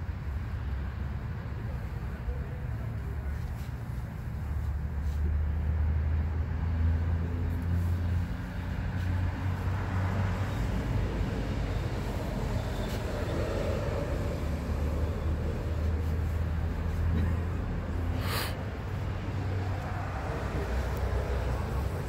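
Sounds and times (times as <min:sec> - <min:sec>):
low rumble of road traffic: 0:00.0 - 0:22.0
car passing: 0:05.5 - 0:22.0.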